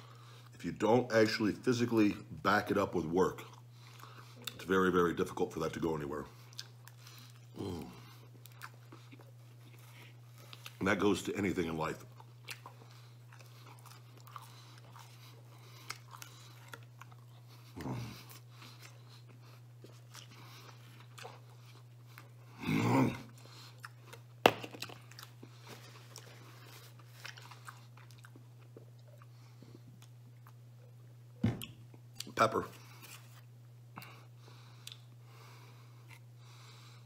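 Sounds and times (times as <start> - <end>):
steady low hum: 0.0 - 37.0
chewing and biting crust: 6.3 - 31.1.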